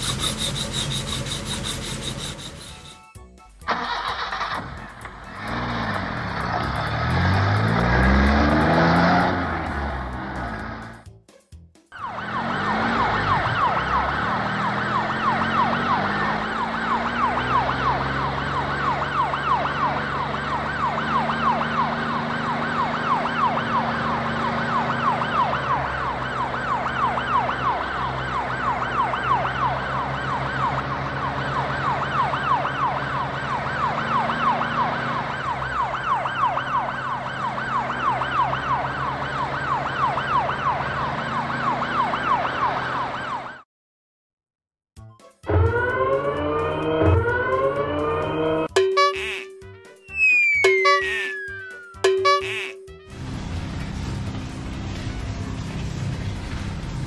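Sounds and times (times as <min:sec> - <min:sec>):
police siren yelping: 0:12.0 - 0:43.6, 0:45.4 - 0:53.1.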